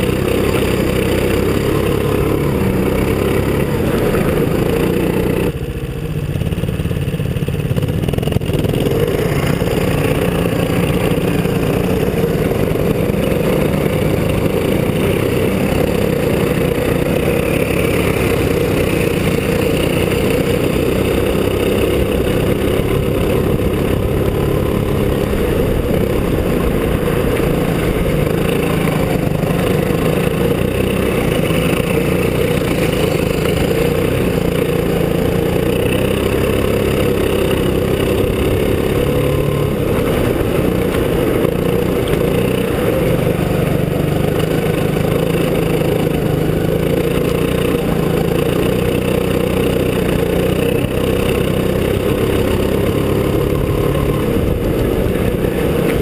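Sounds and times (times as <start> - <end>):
go-kart engine running: 0.0 - 56.0.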